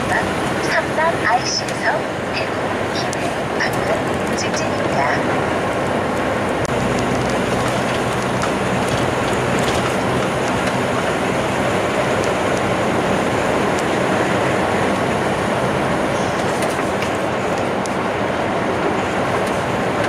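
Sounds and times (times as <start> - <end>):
diesel engine drone: 0.0 - 20.0.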